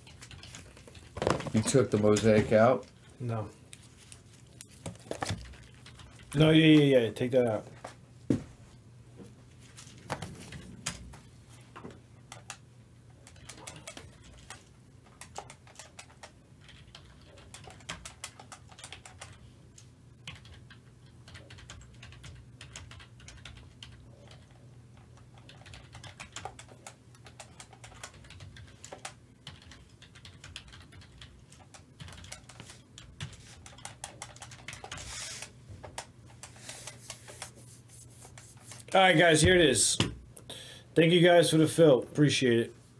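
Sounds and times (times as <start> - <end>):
low electrical hum: 0.0 - 42.9.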